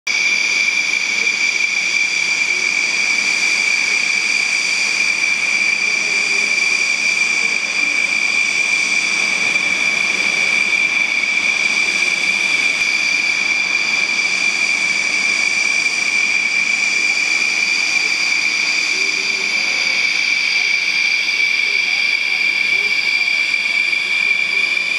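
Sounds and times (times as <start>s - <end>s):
high-pitched engine whine: 0.1s - 24.9s.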